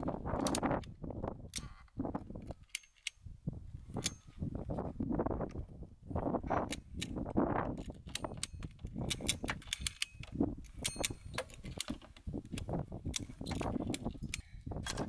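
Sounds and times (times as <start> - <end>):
ratchet strap clicking: 2.5 - 3.2, 6.7 - 15.0.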